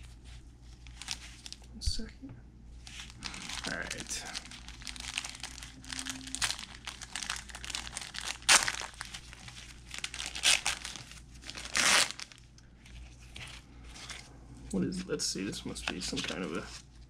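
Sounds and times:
paper wrapper tearing and crinkling: 0.8 - 1.7, 2.8 - 14.2.

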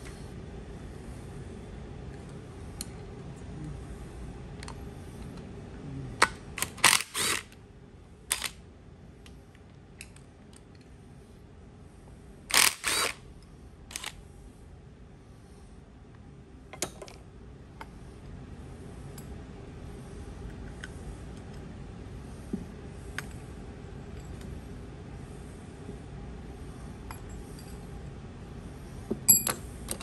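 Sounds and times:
cordless drill running: 6.8 - 7.5, 12.5 - 13.2.

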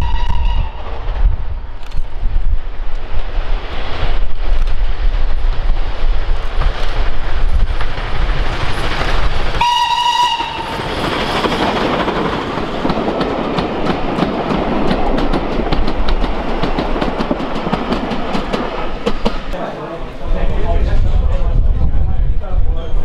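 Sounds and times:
steam whistle: 0.0 - 0.8, 9.6 - 10.9
rumble of train coaches: 0.0 - 23.0
wheels clicking over rail joints: 4.5 - 19.6.

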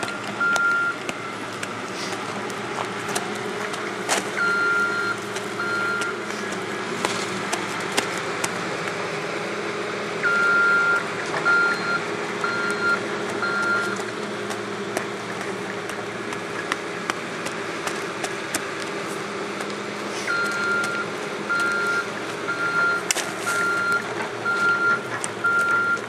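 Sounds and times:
backup alarm beeping: 0.0 - 1.4, 4.4 - 6.3, 10.2 - 14.0, 20.3 - 26.0
machine engine droning: 0.0 - 26.0.

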